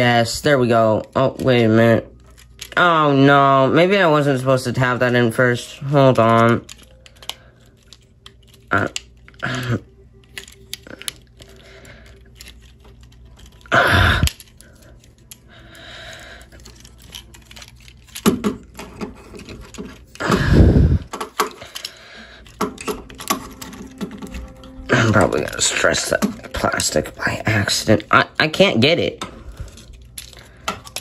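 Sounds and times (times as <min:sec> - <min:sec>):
plastic toy parts clicking and rattling: 0:00.0 - 0:31.0.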